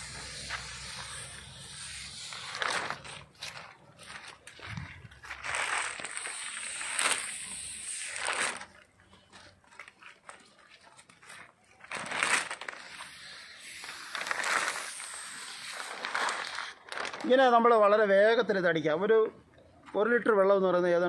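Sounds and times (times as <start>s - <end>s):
pressure sprayer hissing: 0.0s - 3.1s, 6.0s - 8.3s
plastic sheet rustling: 0.0s - 18.1s.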